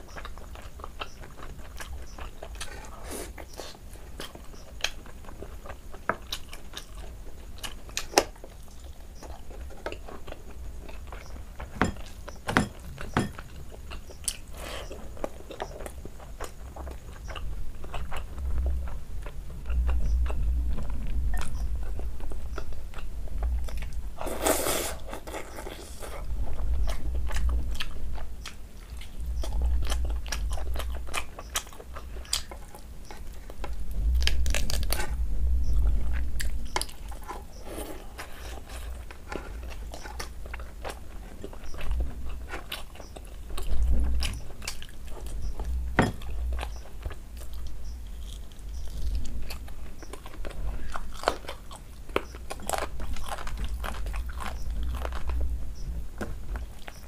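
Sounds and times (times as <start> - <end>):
low rumble: 17.4 - 24.2, 33.3 - 37.3.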